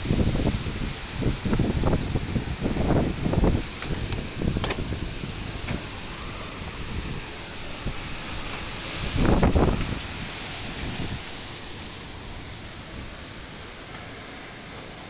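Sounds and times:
wind buffeting microphone: 0.0 - 13.2
heavy rain hiss: 0.0 - 15.0.

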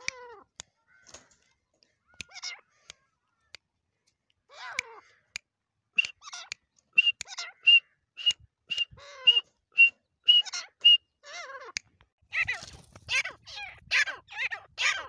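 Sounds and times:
partridge whistled calls: 6.0 - 11.1.

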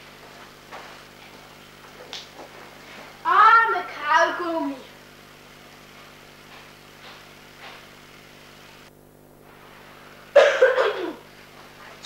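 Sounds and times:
film soundtrack hiss and hum: 0.0 - 12.0
loud voice: 3.2 - 4.9.

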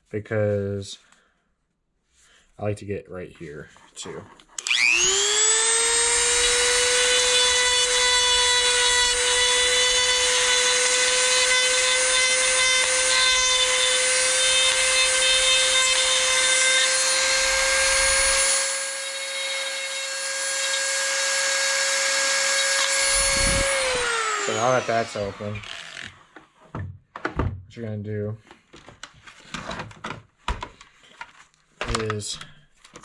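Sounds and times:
rotary tool whine: 4.6 - 26.2.

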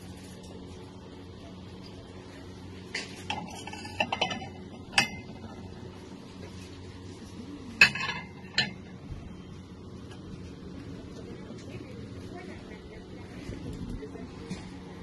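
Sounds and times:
steady low hum: 0.0 - 15.0
ceramic dishes clinking: 3.3 - 5.5, 7.8 - 8.9.

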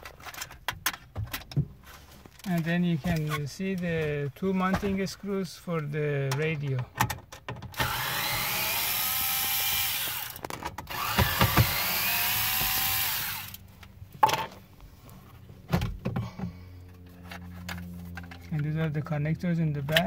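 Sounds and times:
powered screwdriver whirring: 7.8 - 13.6.

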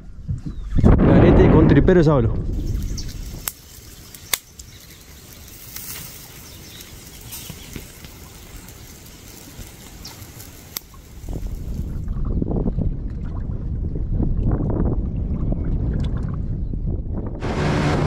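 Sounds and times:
soft outdoor rustle: 2.6 - 12.1.

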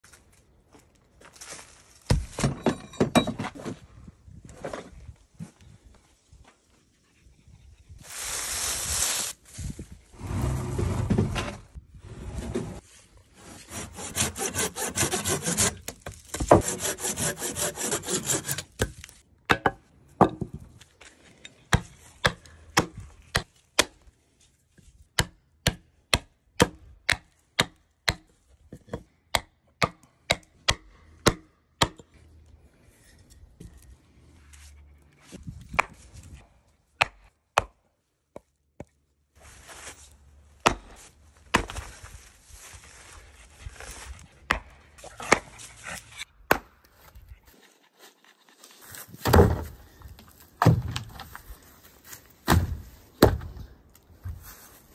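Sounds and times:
hand saw cutting branch: 13.4 - 18.9
chopping strikes into wood: 29.3 - 32.1, 37.0 - 37.8, 40.6 - 41.8, 46.5 - 46.8, 49.2 - 49.8, 50.6 - 51.2, 52.4 - 53.6.

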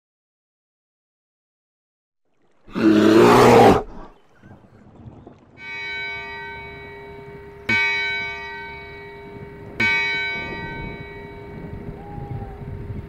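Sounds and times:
large bell ringing: 5.6 - 13.0.

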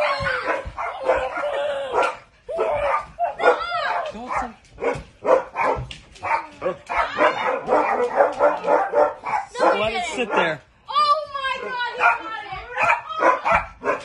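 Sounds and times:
dog barking and yipping: 0.0 - 10.6, 11.5 - 14.0.

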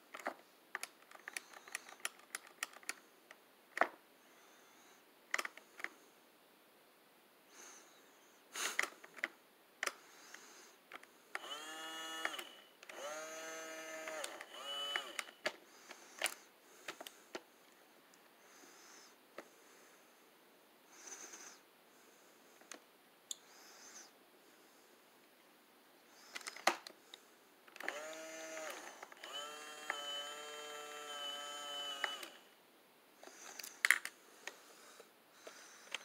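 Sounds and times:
plastic toy clicks and clatter: 0.1 - 3.0, 5.3 - 5.9.

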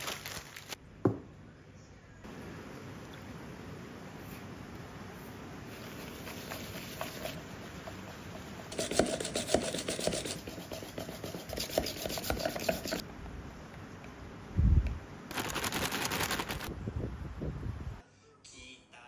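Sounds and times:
whisk scraping a plastic bowl: 5.7 - 13.0.

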